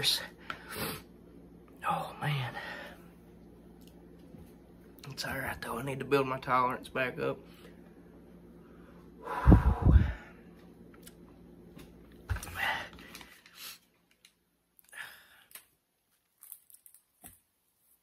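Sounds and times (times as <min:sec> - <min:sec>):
man breathing hard into microphone: 0:08.7 - 0:10.4.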